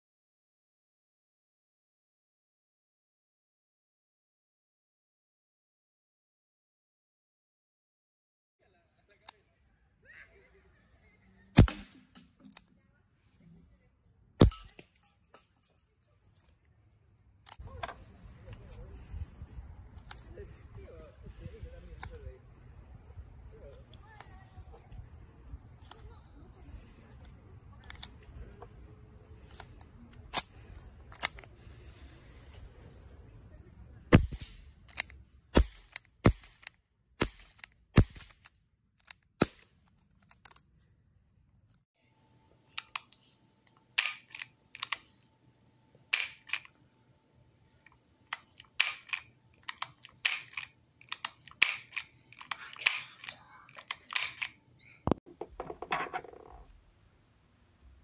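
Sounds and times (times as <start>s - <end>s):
air pistol shots cracking: 11.6s - 12.2s, 14.4s - 14.8s, 34.1s - 34.7s, 35.5s - 38.5s, 39.4s - 39.7s, 46.1s - 46.6s, 48.8s - 49.3s, 51.2s - 52.1s
metallic clicks of revolver action: 14.4s - 15.8s, 17.4s - 17.6s, 20.0s - 20.3s, 29.5s - 31.5s, 34.2s - 40.6s, 42.8s - 45.2s, 46.1s - 46.8s, 47.8s - 54.6s.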